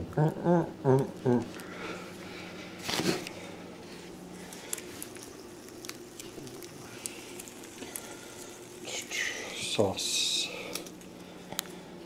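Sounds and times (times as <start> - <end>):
crinkly rustle: 2.7 - 9.2.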